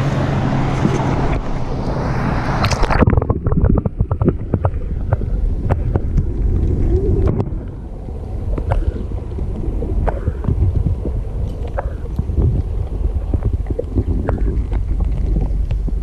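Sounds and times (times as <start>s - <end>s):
underwater rumble: 0.0s - 16.0s
wind on microphone: 0.0s - 16.0s
underwater clicks and pops: 2.6s - 7.8s, 8.5s - 16.0s.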